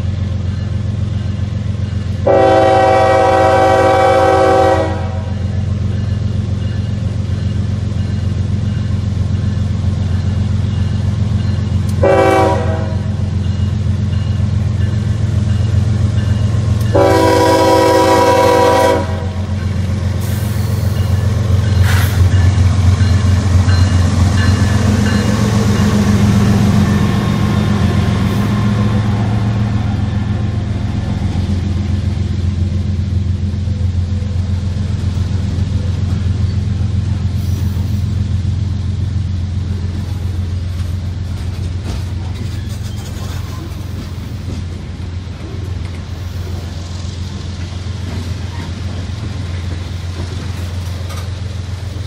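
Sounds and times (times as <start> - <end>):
diesel locomotive engines rumbling: 0.0 - 52.0
freight cars rolling on rails: 0.0 - 52.0
locomotive horn blast: 2.2 - 5.4, 11.9 - 13.2, 16.9 - 19.6.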